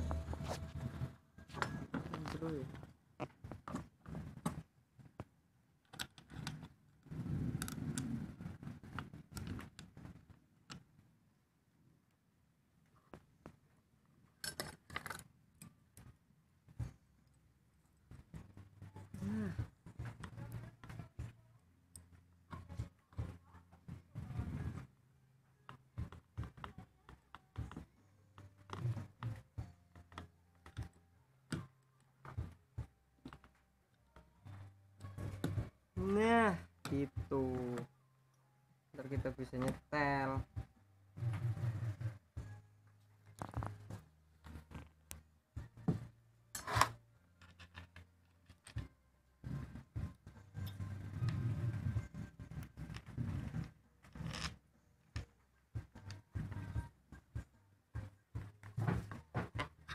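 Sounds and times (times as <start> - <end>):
plastic parts clicking and knocking: 1.6 - 6.8, 14.4 - 16.1, 45.8 - 48.9, 58.4 - 59.9.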